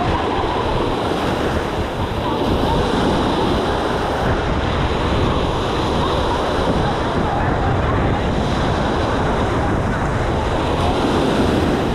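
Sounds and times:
small waves breaking on sand: 0.0 - 11.9
wind buffeting microphone: 0.0 - 11.9.

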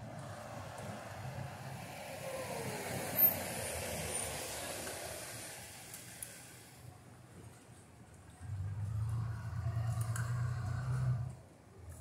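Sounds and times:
vehicle passing by: 8.5 - 11.4.

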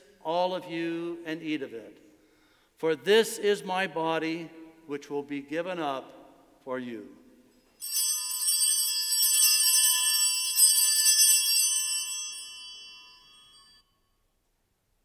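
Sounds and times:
altar bells ringing: 7.5 - 14.1.

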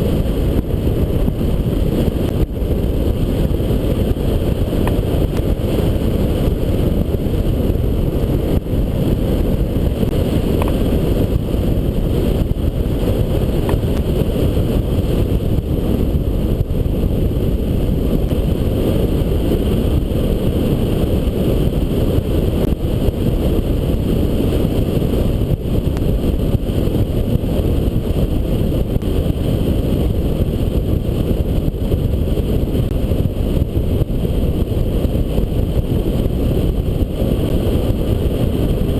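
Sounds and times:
wind noise on microphone: 0.0 - 38.9.

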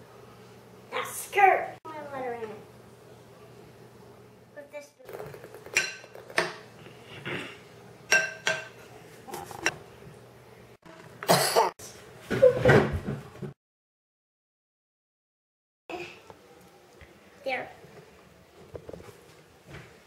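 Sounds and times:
spoon clinking ceramic bowl: 8.1 - 8.8
knocks and handling noises: 18.6 - 20.0.

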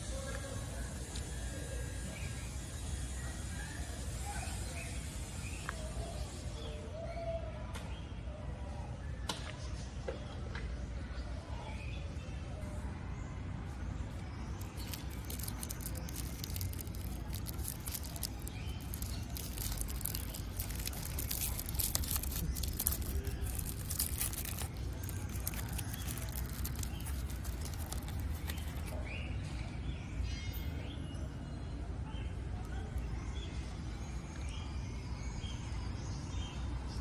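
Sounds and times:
low outdoor rumble: 12.6 - 29.8
foil wrapper crinkling: 14.1 - 29.0.

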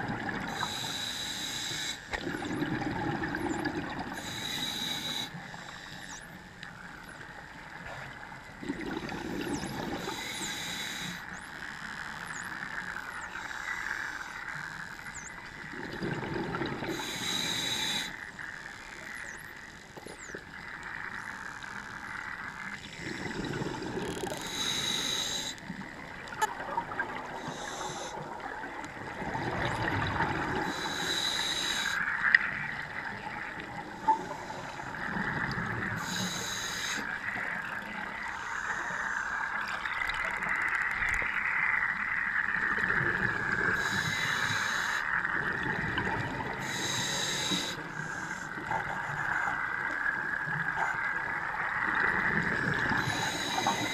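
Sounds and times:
underwater background noise: 0.0 - 53.9.

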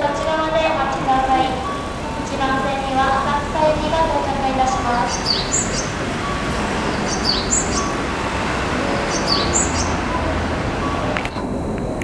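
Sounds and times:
electric train rumbling: 0.0 - 12.0
recorded bird-like chirp: 4.6 - 6.0, 6.9 - 8.0, 9.1 - 10.0.

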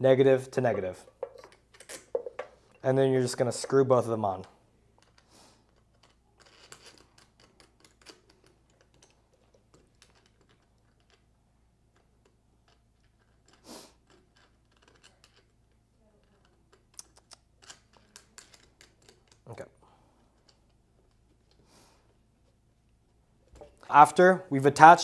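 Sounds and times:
metal nuts clicking: 5.0 - 11.3, 11.9 - 19.5.

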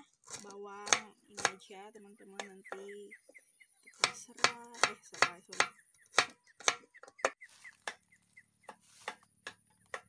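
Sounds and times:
knife chopping on wooden board: 0.3 - 1.6, 4.0 - 8.0, 8.6 - 10.0.

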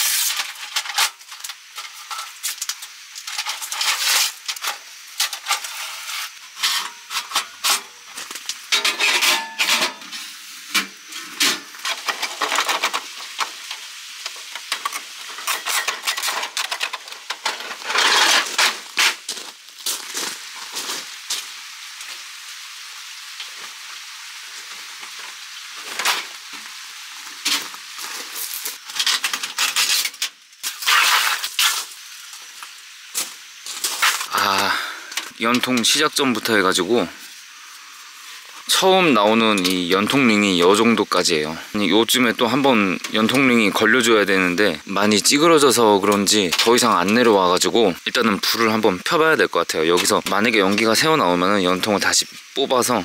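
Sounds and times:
footsteps on gravel: 18.8 - 21.1.

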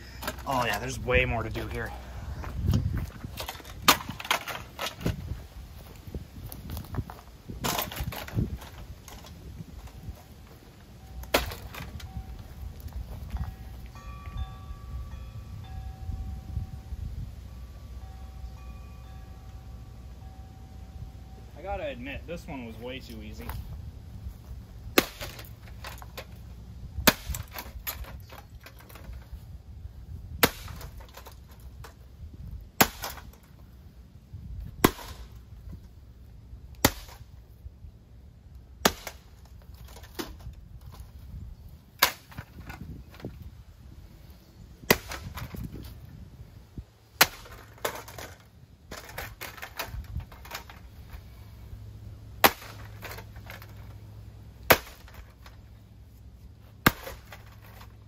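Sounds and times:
sledgehammer smashing metal housing: 11.2 - 12.1, 52.4 - 53.9, 54.7 - 55.5, 56.8 - 57.9.

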